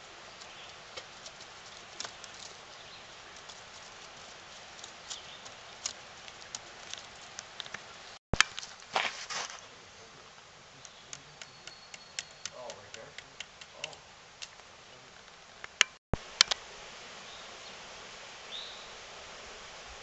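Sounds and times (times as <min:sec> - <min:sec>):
rustling: 0:00.0 - 0:09.8.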